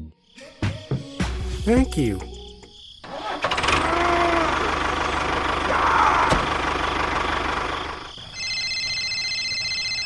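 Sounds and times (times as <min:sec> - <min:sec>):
tractor engine chugging: 0:03.1 - 0:08.5.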